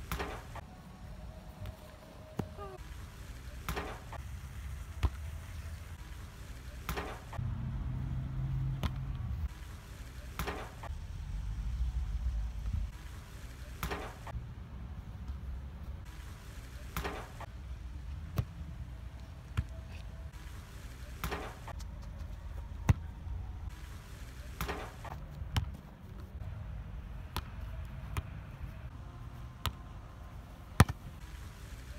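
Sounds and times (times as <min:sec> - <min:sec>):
football hitting crossbar and fence: 0:00.0 - 0:00.6, 0:03.6 - 0:04.2, 0:05.0 - 0:05.3, 0:06.8 - 0:07.4, 0:08.8 - 0:09.2, 0:10.3 - 0:10.9, 0:13.8 - 0:14.3, 0:16.9 - 0:17.5, 0:18.2 - 0:18.6, 0:21.2 - 0:21.8, 0:22.8 - 0:23.1, 0:24.5 - 0:26.2, 0:29.6 - 0:29.9, 0:30.7 - 0:31.2.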